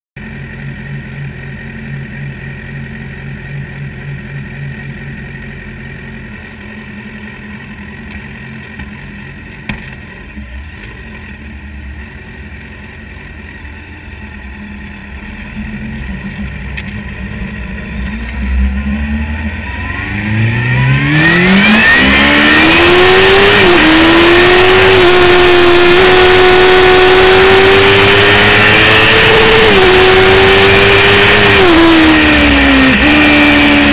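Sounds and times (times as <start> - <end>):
motorcycle engines idling: 0.2 - 20.1
motorcycle revving and accelerating: 14.4 - 33.9.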